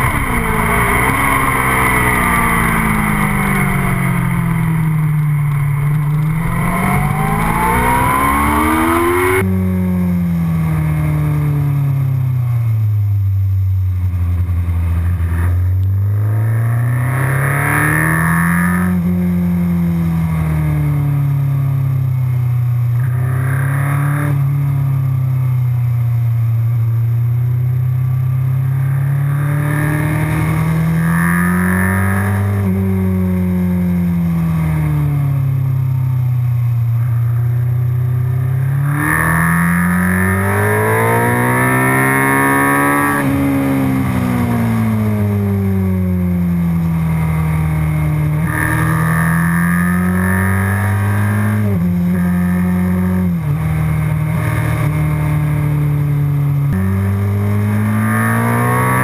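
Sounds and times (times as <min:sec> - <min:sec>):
motorcycle engine accelerating: 0:00.0 - 0:59.0.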